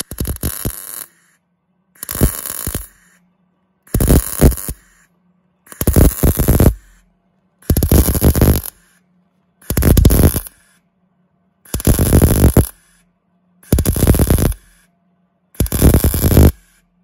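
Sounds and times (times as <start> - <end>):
welder arc crackling: 0.0 - 1.4, 2.0 - 3.2, 3.9 - 5.1, 5.7 - 9.0, 9.6 - 10.8, 11.7 - 13.0, 13.7 - 14.9, 15.6 - 16.8
faint low hum: 0.0 - 17.0.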